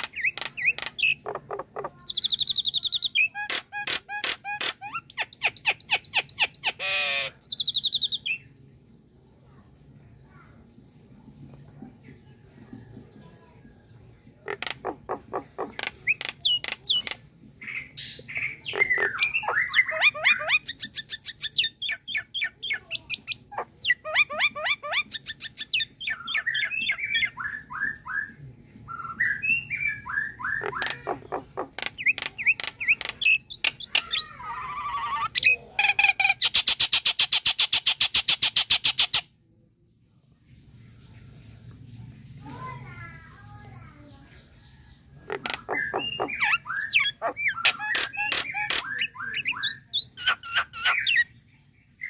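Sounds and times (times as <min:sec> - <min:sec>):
myna bird calling: 0:00.0 - 0:08.5, 0:14.4 - 0:28.2, 0:29.2 - 0:39.2, 0:45.2 - 0:51.3.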